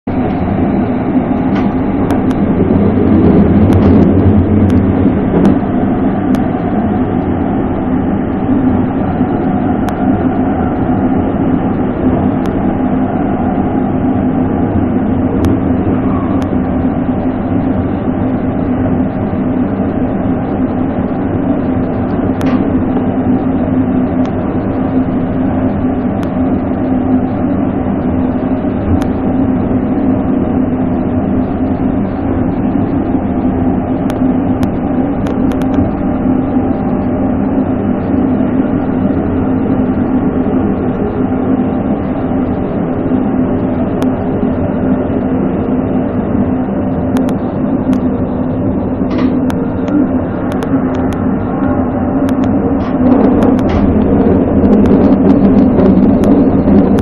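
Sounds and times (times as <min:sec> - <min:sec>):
train rumbling on rails: 0:00.0 - 0:57.0
sharp rail clicks: 0:22.0 - 0:23.1, 0:49.0 - 0:57.0.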